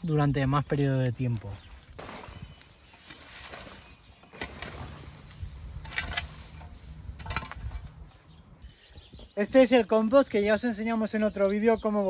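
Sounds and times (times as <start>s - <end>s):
spade digging into compost: 1.9s - 8.1s.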